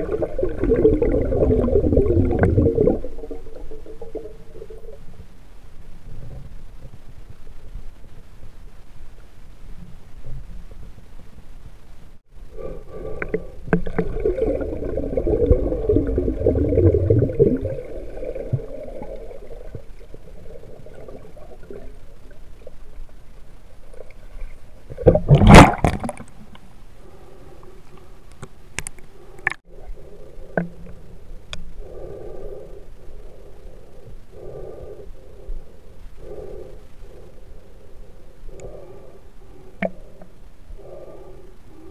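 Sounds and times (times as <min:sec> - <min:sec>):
rush of bubbles: 0:00.0 - 0:05.0, 0:13.7 - 0:22.0, 0:25.0 - 0:26.3
underwater churning and gurgling: 0:00.0 - 0:07.3, 0:12.5 - 0:26.6.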